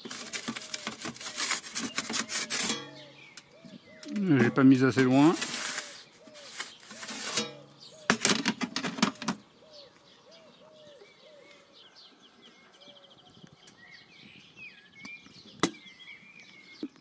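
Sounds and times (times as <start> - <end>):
metal scraping and clattering: 0.0 - 3.2, 4.2 - 9.3
bird calling: 0.0 - 17.0.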